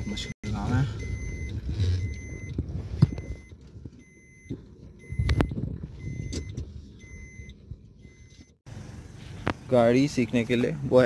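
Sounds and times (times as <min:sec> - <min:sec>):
car warning chime beeping: 0:00.0 - 0:08.6.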